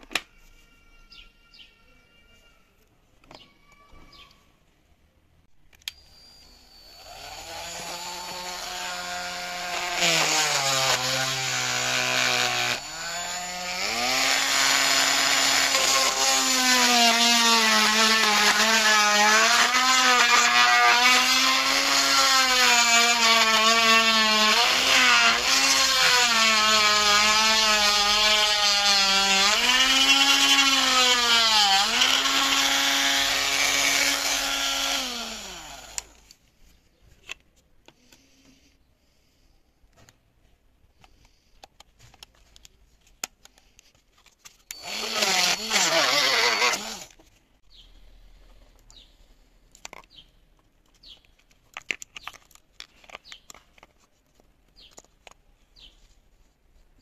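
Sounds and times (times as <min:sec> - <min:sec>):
rotary tool cutting plastic: 0:05.8 - 0:36.4, 0:41.0 - 0:47.3.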